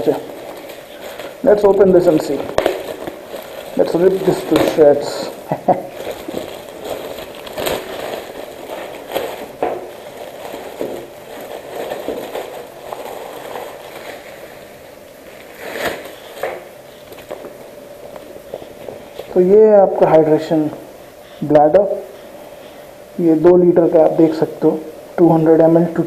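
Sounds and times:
plastic bag crinkling: 0:00.0 - 0:20.5.

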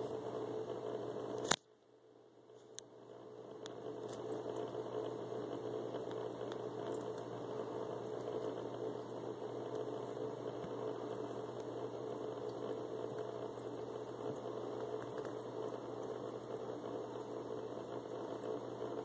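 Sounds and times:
low mechanical hum: 0:00.0 - 0:19.0
faint ticks: 0:03.6 - 0:07.4.

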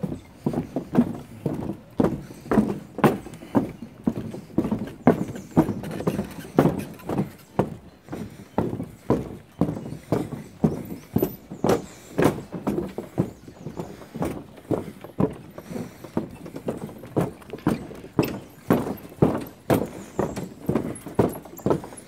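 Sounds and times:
footsteps on wooden planks: 0:00.0 - 0:22.0.

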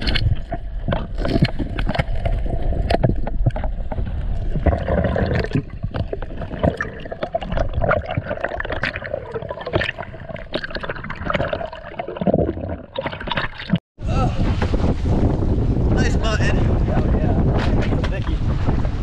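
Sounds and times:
underwater rushing rumble: 0:00.0 - 0:19.0.

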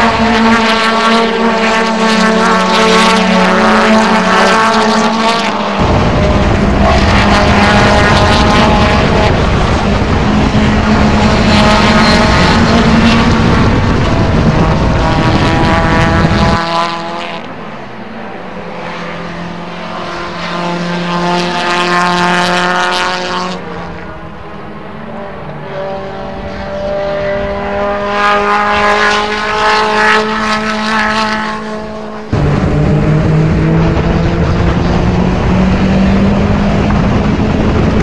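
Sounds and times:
racing car engine revving: 0:00.0 - 0:38.0
loud low rumble: 0:05.8 - 0:16.5, 0:32.3 - 0:38.0.

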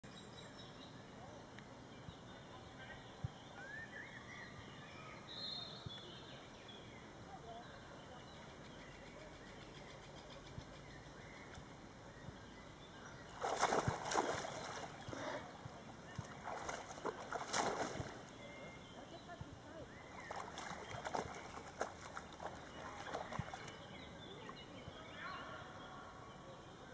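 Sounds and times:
faint bird calls: 0:07.3 - 0:26.9
dog splashing in water: 0:13.4 - 0:15.4, 0:16.1 - 0:18.3, 0:20.1 - 0:23.8.

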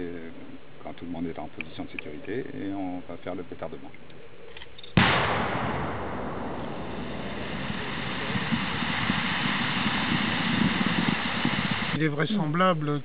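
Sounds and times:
explosion blast: 0:05.0 - 0:12.0
rolling rumble: 0:05.0 - 0:12.0.

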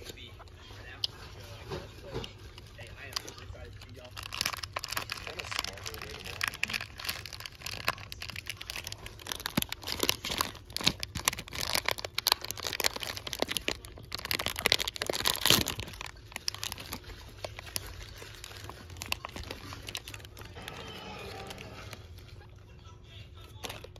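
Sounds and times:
foil packet crinkling: 0:00.0 - 0:22.6, 0:23.3 - 0:23.9.

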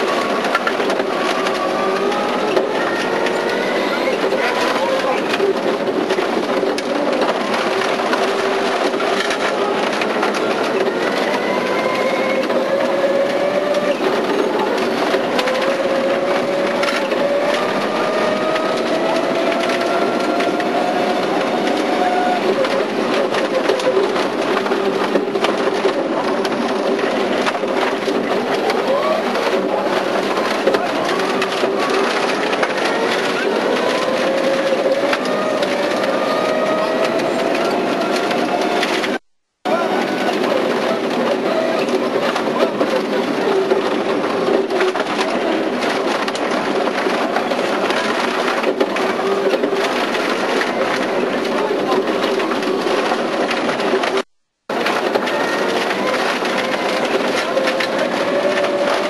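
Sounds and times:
rally car engine revving: 0:00.0 - 0:59.0
tyre and road noise: 0:00.0 - 0:59.0.

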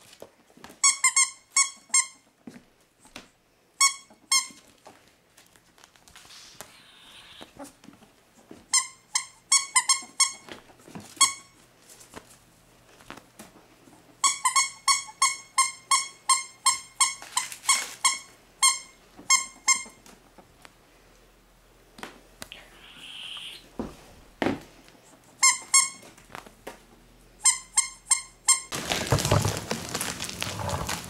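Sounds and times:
squeaky toy squeaking: 0:00.8 - 0:02.2, 0:03.8 - 0:04.6, 0:08.7 - 0:10.5, 0:14.2 - 0:20.0, 0:25.4 - 0:26.0, 0:27.4 - 0:28.7.

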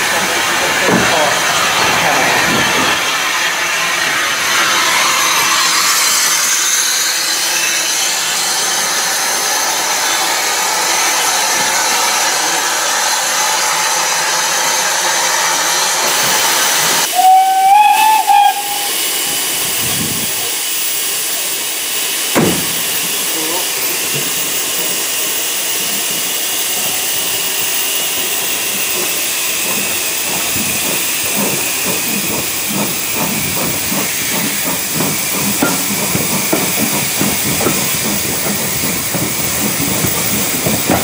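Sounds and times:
steam locomotive hissing: 0:00.0 - 0:41.0
steam whistle blast: 0:17.1 - 0:19.4.

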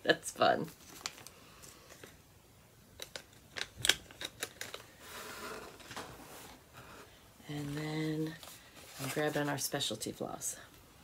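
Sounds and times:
soft packaging rustling: 0:00.5 - 0:02.3, 0:02.9 - 0:10.8.

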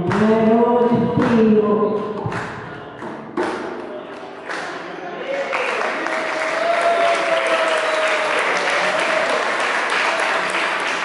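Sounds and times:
long wavering cheer: 0:05.2 - 0:10.6
audience applauding: 0:05.2 - 0:11.0.

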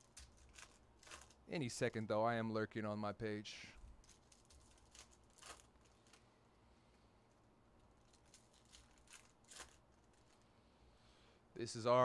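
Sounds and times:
card pack wrapper rustling: 0:00.0 - 0:01.4, 0:03.9 - 0:06.3, 0:07.8 - 0:10.5.

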